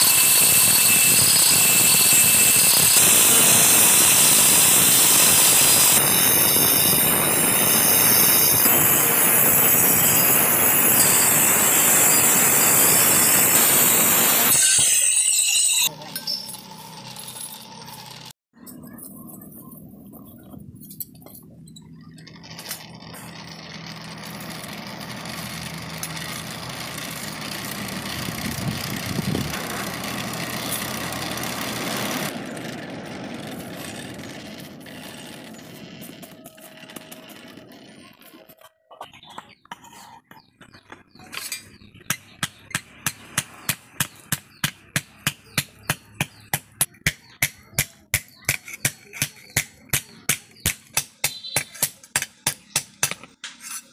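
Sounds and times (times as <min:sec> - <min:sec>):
forge fire rushing with low hum: 0:27.5 - 0:38.2
hammer striking iron on anvil: 0:42.1 - 0:53.3.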